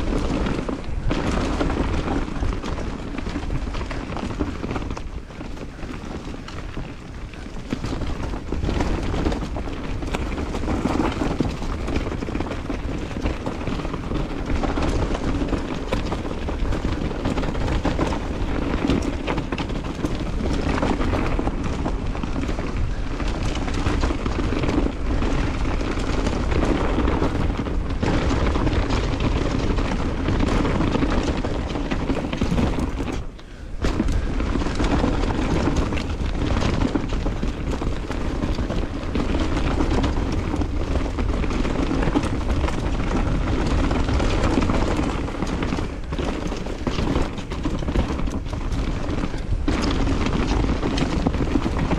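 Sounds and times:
bike chain and frame clattering: 0.0 - 51.9
bike tyre noise: 0.0 - 51.9
wind rumbling on microphone: 0.0 - 51.9.

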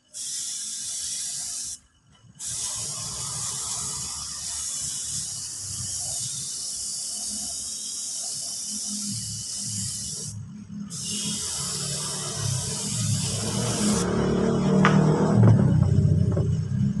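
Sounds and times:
spray gun hissing: 0.0 - 1.8, 2.4 - 14.1.

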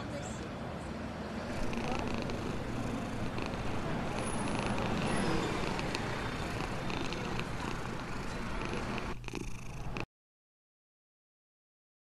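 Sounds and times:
cat purring: 1.5 - 10.1.

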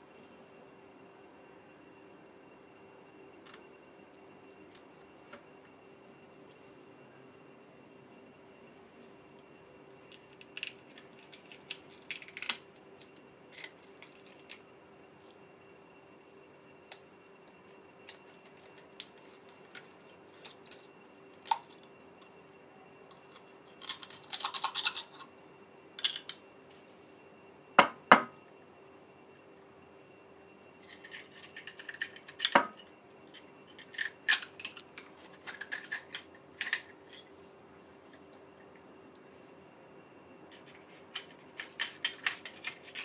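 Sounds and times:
faint steady hum: 0.0 - 43.0
knife scraping shell: 40.5 - 43.0.

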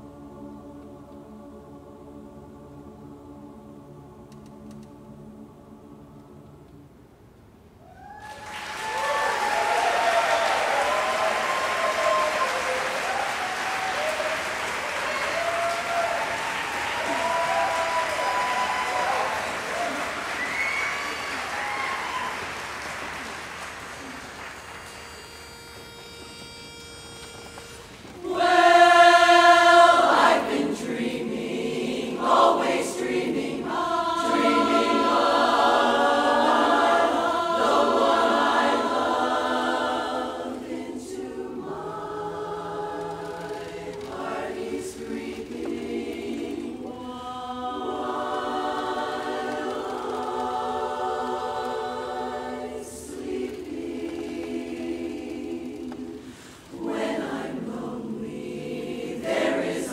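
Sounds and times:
women's chorus singing a cappella: 0.0 - 6.9, 28.2 - 59.9.

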